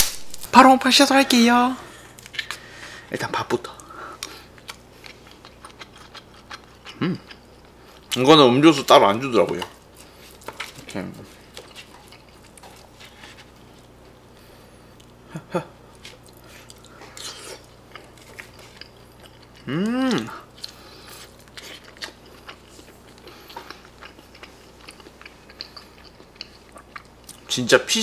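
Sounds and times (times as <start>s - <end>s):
person chewing food: 2.1s - 2.8s, 3.7s - 8.2s, 9.4s - 27.5s
person humming: 19.6s - 20.5s.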